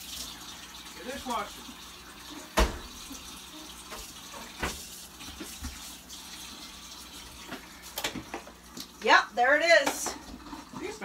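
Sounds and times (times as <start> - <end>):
kitchen tap running: 0.0 - 11.0.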